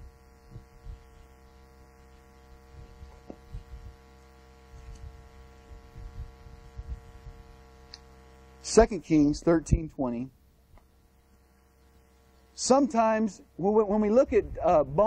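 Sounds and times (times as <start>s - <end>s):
electrical hum: 0.0s - 15.0s
faint ticks: 7.8s - 8.1s.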